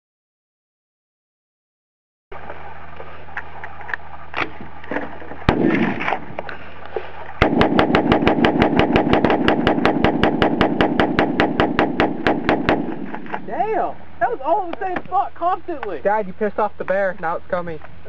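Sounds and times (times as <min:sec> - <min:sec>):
steady low hum: 0:02.3 - 0:18.0
rifle rapid fire: 0:05.5 - 0:06.3, 0:07.4 - 0:13.5.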